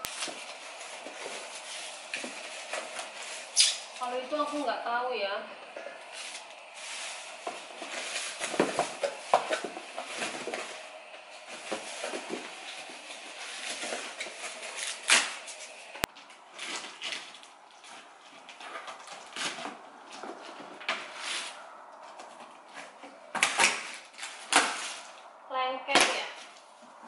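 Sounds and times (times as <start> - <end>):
plastic bags rustling: 0.0 - 25.4
cardboard boxes being handled: 0.1 - 4.7, 6.2 - 15.8.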